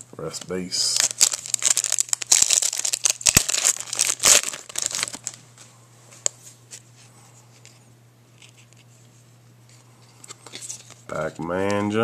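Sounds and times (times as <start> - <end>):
foil wrapper crinkling: 0.8 - 5.4.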